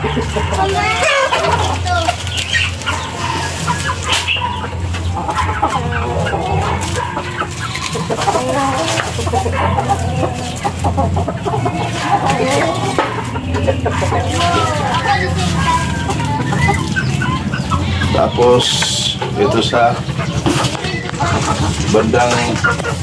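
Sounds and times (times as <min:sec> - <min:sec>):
chickens clucking: 0:00.0 - 0:23.0
steady low hum: 0:00.0 - 0:23.0.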